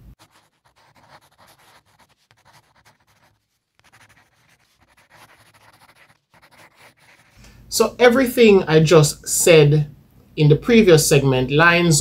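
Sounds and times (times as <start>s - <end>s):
chalk scratching on blackboard: 0.1s - 7.4s.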